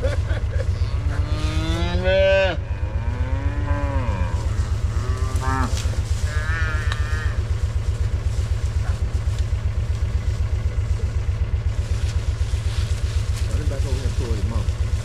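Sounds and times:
engine idling: 0:00.0 - 0:15.0
cattle mooing: 0:00.8 - 0:07.5.

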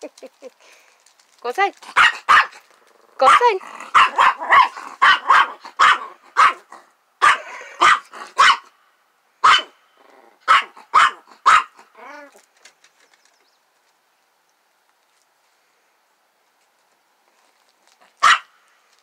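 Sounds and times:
small dog barking: 0:01.9 - 0:02.6, 0:03.2 - 0:08.7, 0:09.4 - 0:09.8, 0:10.4 - 0:11.9, 0:18.2 - 0:18.5.

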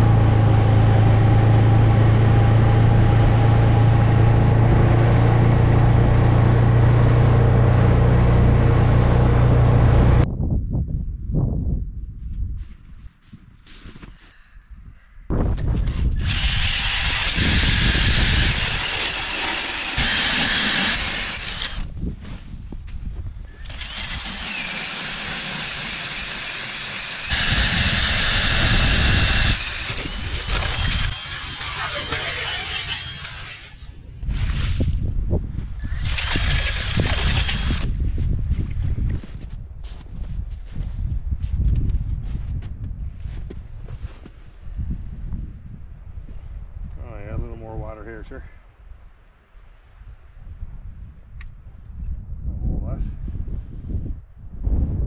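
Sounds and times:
snowmobile engine drone: 0:00.0 - 0:10.2, 0:15.7 - 0:22.5, 0:23.5 - 0:34.9, 0:35.7 - 0:38.0
auger bit cutting ice: 0:15.8 - 0:21.9, 0:23.5 - 0:34.8, 0:35.8 - 0:38.0
drill motor whirring: 0:15.9 - 0:21.9, 0:23.5 - 0:33.9, 0:35.8 - 0:37.9.

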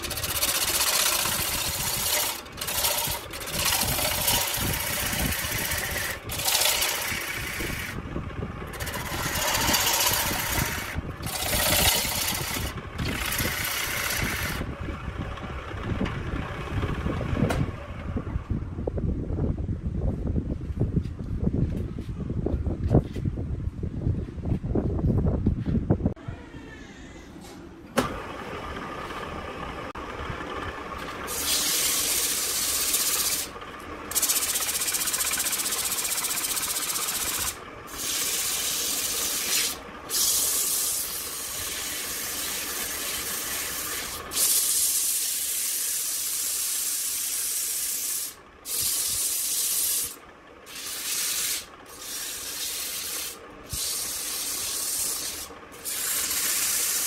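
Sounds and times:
sandpaper hissing on spinning wood: 0:00.0 - 0:08.0, 0:08.7 - 0:14.6, 0:31.3 - 0:57.0
wood lathe running: 0:00.0 - 0:17.2, 0:28.0 - 0:57.0.

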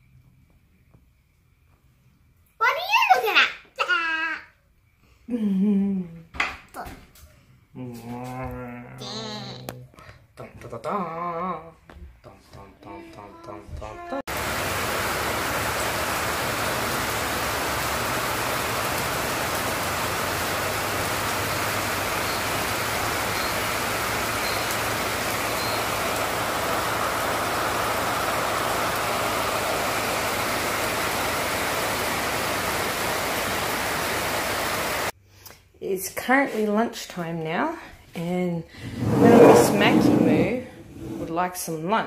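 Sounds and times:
steady rushing noise: 0:38.8 - 0:41.2.

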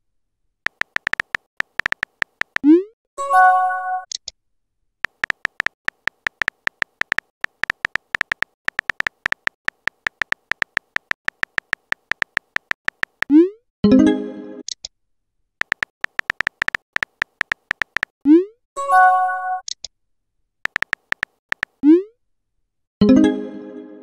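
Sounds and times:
phone keyboard clicks: 0:00.7 - 0:02.7, 0:05.0 - 0:13.3, 0:15.6 - 0:18.2, 0:20.6 - 0:21.8.

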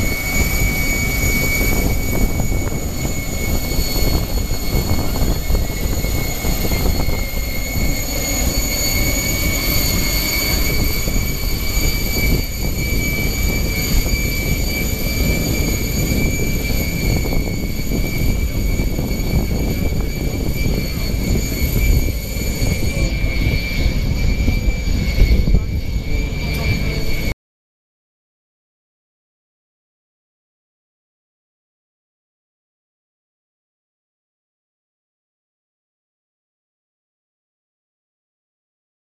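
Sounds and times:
low exhaust rumble: 0:00.0 - 0:27.3
turbine engines whining: 0:00.0 - 0:27.4.

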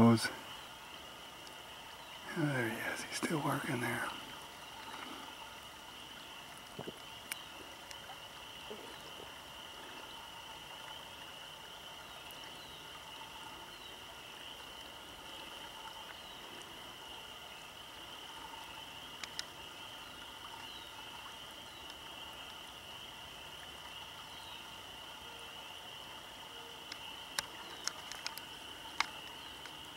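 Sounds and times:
frogs chorus: 0:00.0 - 0:29.9
water running over sticks: 0:26.1 - 0:29.9.

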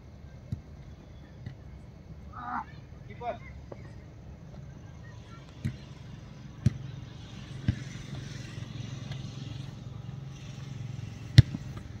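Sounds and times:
football being kicked: 0:11.3 - 0:11.9.

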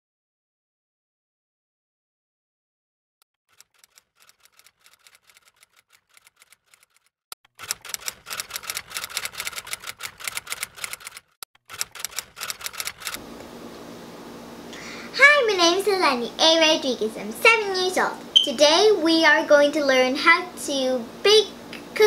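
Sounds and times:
typewriter key clicks: 0:07.6 - 0:13.2.

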